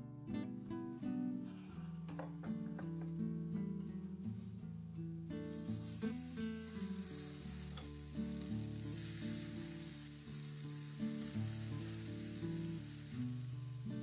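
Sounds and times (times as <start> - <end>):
waffle batter sizzling: 5.3 - 14.0.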